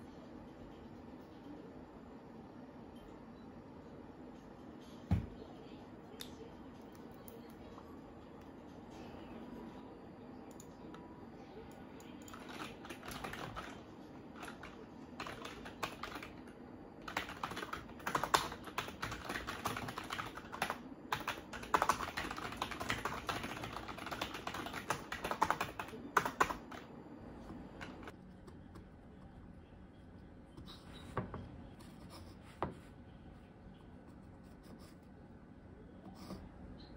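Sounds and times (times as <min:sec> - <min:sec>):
typing on computer keyboard: 0:12.1 - 0:13.8, 0:14.4 - 0:26.8.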